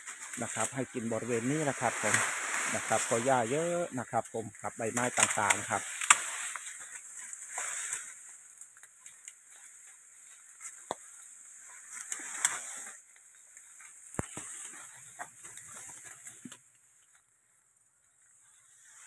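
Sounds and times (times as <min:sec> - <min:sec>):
leaves and twigs rustling: 0:00.0 - 0:19.0
twigs snapping: 0:04.9 - 0:11.3, 0:11.9 - 0:17.2.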